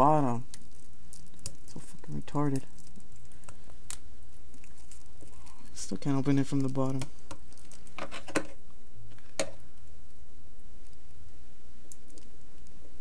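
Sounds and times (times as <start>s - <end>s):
steady low hum: 0.0s - 13.0s
plastic wrapping clicks and crinkles: 0.2s - 9.9s.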